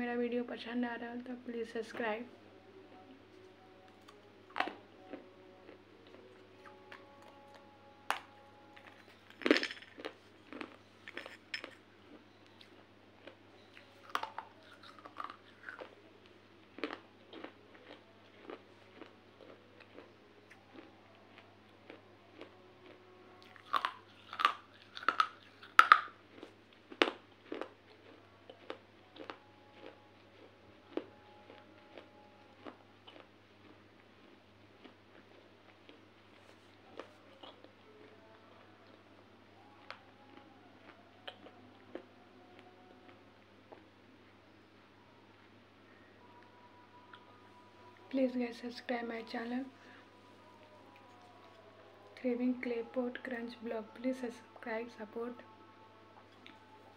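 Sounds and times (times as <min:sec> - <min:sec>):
crunching and chewing: 0:02.9 - 0:44.3, 0:49.7 - 0:52.2, 0:56.1 - 0:56.9.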